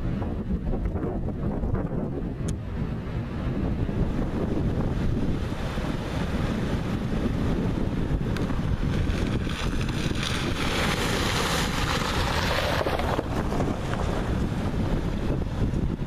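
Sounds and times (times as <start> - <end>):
wind buffeting microphone: 0.0 - 16.0
shallow river rushing: 4.2 - 16.0
car splashing through water: 8.5 - 15.6.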